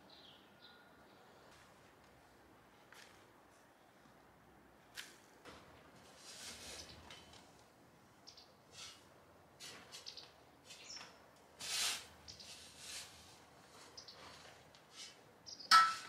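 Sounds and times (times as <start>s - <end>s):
bird chirps: 8.2s - 8.6s, 10.0s - 11.1s, 14.0s - 14.2s, 15.5s - 15.8s
rustling and handling noises: 8.8s - 16.0s.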